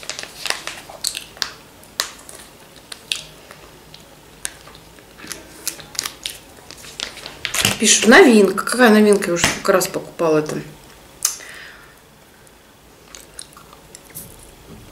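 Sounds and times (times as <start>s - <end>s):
plastic pouch clicks and crinkles: 0.0s - 7.8s.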